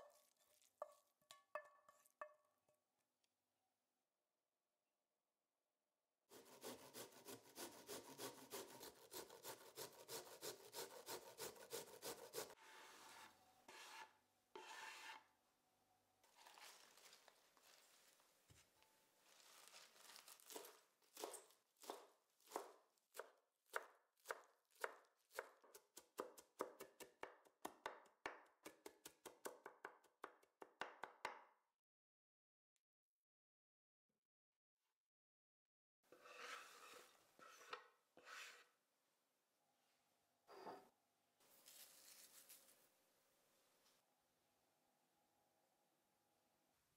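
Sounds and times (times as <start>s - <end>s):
grating on metal hand grater: 6.4s - 12.6s
leaves rustling on board: 16.3s - 21.6s, 41.5s - 42.8s
knife chopping on wooden board: 20.5s - 31.2s.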